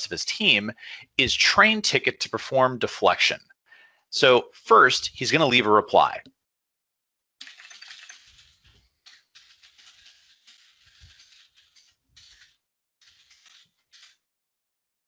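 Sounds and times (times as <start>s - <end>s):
typing on computer keyboard: 7.4s - 12.4s.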